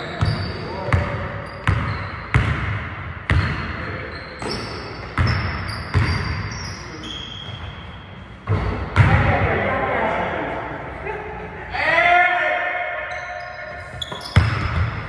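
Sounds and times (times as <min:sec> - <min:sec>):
sneaker squeaks: 0:00.0 - 0:02.6, 0:03.3 - 0:08.7, 0:13.1 - 0:15.0
basketball bouncing on wooden floor: 0:01.7 - 0:03.6, 0:05.2 - 0:06.2, 0:14.0 - 0:15.0.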